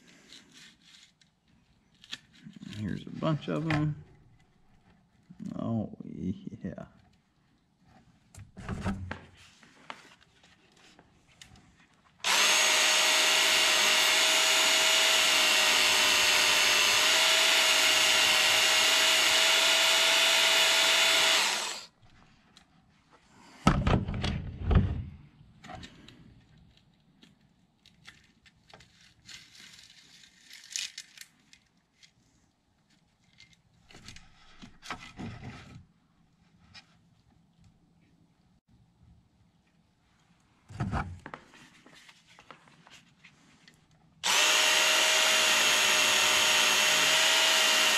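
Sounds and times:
electric belt grinder running: 12.2s - 21.9s, 44.2s - 47.9s.

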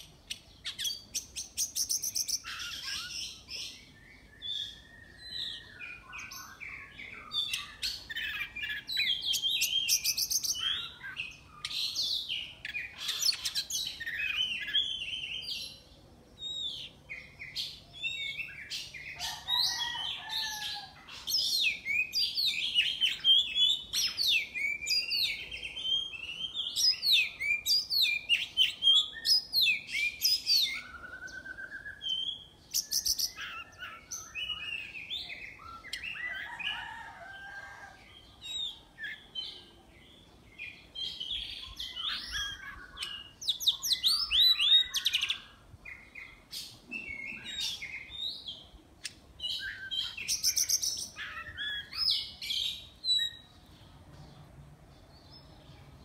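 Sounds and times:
bird singing whistled phrases: 21.9s - 36.2s.

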